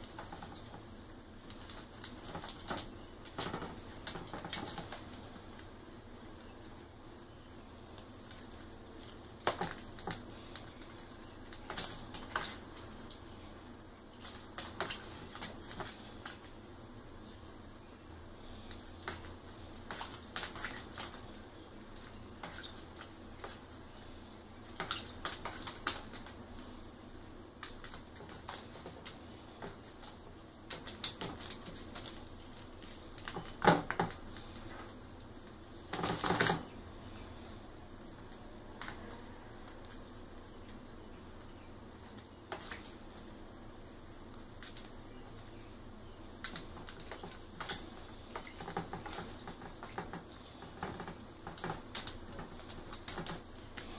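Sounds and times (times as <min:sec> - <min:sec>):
bird wing-flapping and splashing: 0:00.0 - 0:05.6, 0:08.0 - 0:13.2, 0:14.1 - 0:16.6, 0:18.7 - 0:24.0, 0:24.6 - 0:34.8, 0:35.9 - 0:36.6, 0:42.0 - 0:43.2, 0:44.3 - 0:45.5, 0:46.4 - 0:53.9
bird splashing in water: 0:14.2 - 0:16.6, 0:18.7 - 0:23.8, 0:24.6 - 0:26.4.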